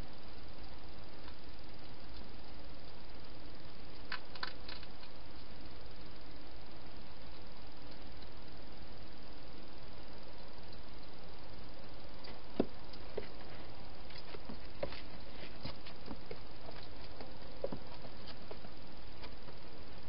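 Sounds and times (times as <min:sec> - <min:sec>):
steady hiss: 0:00.0 - 0:20.0
hedgehog feeding clicks and crunches: 0:03.9 - 0:05.5.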